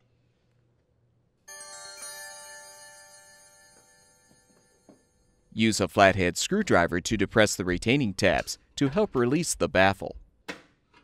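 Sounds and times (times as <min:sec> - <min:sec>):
bright electronic alert chime: 0:01.5 - 0:05.5.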